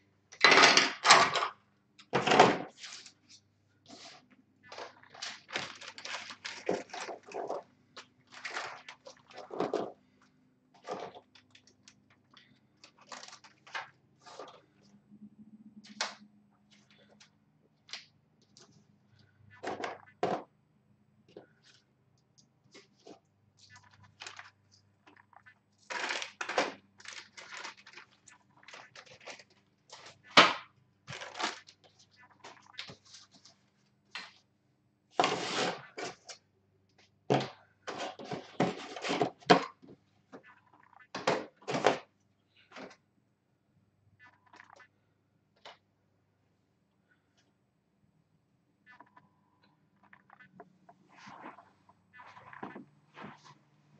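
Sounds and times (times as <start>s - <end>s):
plastic bags and small parts handled: 0.3s - 15.0s, 21.3s - 34.5s, 37.0s - 43.0s.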